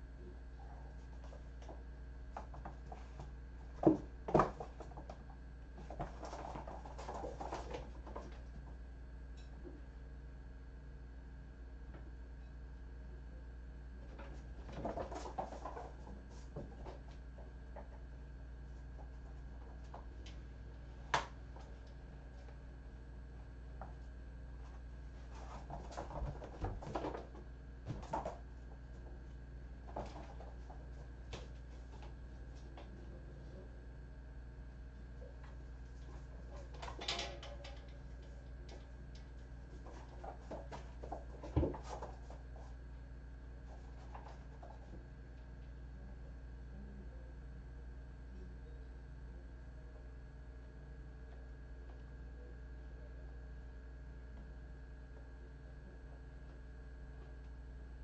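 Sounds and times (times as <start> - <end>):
steady low hum: 0.0 - 58.0
kittens scratching and rustling: 0.8 - 8.8, 14.1 - 22.6, 23.8 - 33.0, 35.3 - 45.5.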